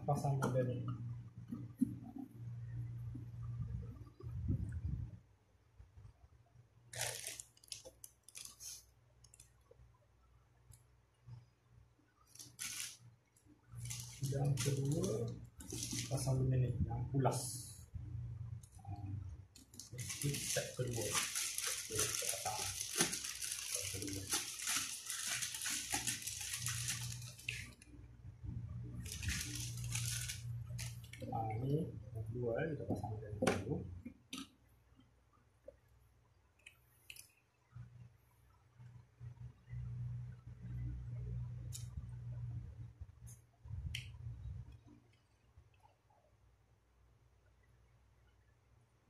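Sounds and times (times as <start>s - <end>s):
plastic bag rustling: 6.9s - 8.8s, 12.3s - 13.0s, 13.7s - 16.4s, 19.6s - 27.8s, 29.0s - 31.3s.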